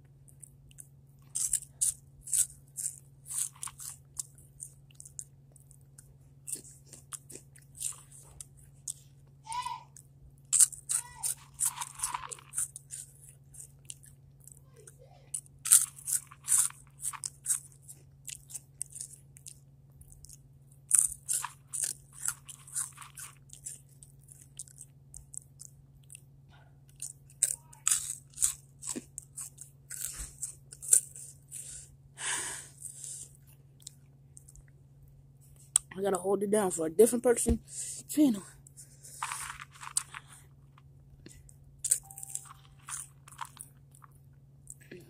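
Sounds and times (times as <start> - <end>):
steady low hum: 0.0 - 45.0
chips being crunched: 1.3 - 4.3, 10.5 - 13.1, 15.7 - 17.7, 20.9 - 23.8, 27.0 - 31.3, 39.1 - 40.4, 41.8 - 44.1.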